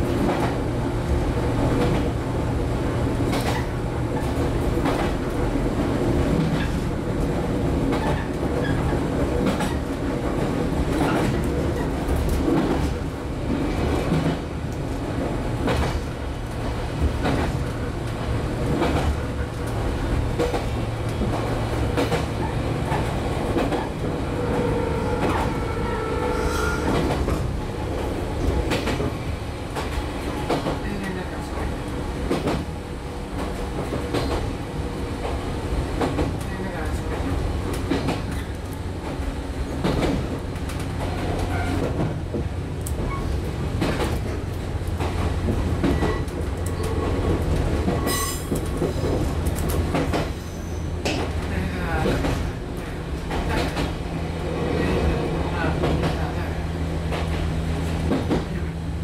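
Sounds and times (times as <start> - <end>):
train wheels rumbling: 0.0 - 59.0
wheels clacking over rail joints: 3.2 - 25.8, 35.2 - 56.4.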